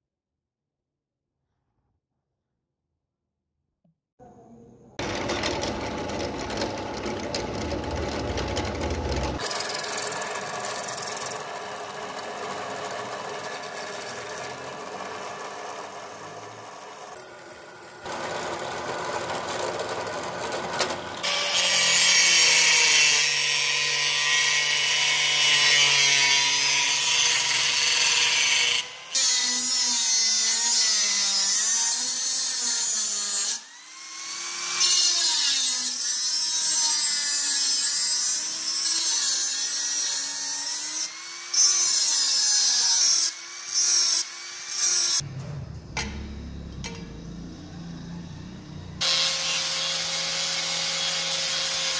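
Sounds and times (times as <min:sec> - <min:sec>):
drill press boring steel: 0:05.0 - 0:29.8
angle grinder grinding steel: 0:05.0 - 0:45.3, 0:46.8 - 0:51.9.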